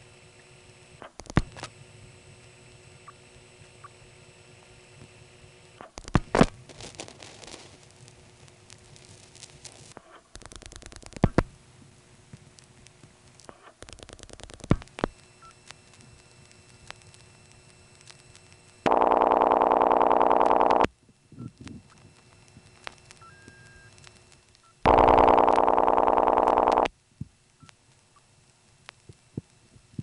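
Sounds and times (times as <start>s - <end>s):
buzzy ringback tone: 18.9s - 20.9s, 24.8s - 26.9s.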